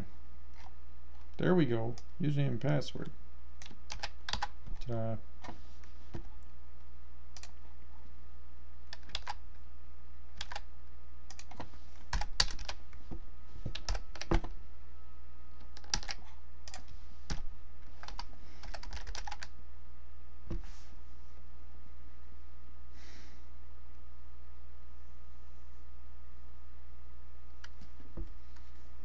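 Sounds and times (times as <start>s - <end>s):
steady low hum: 0.0s - 29.0s
typing on computer keyboard: 3.6s - 4.6s, 8.9s - 9.4s, 10.4s - 10.7s, 11.3s - 12.8s, 15.7s - 17.4s, 18.0s - 19.5s.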